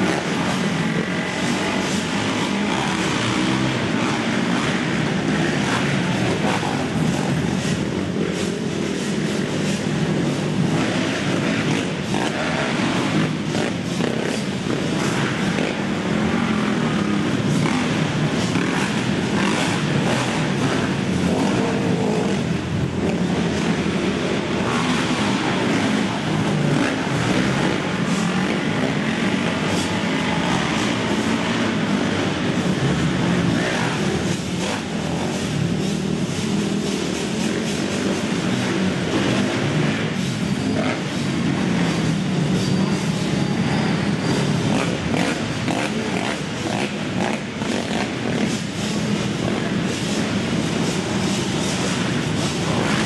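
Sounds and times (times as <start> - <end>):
quad engines revving: 0.0 - 53.0.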